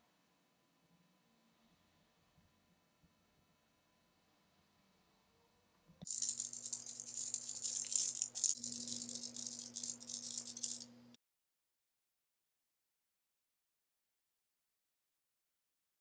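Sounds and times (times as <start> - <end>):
steady low hum: 6.0 - 11.2
plastic bricks rattling in box: 6.1 - 10.9.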